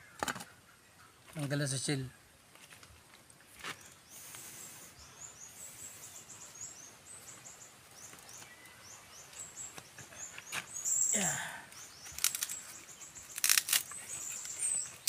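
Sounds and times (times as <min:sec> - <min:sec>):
outdoor background hiss: 0:00.0 - 0:15.0
small bird chirping: 0:03.6 - 0:15.0.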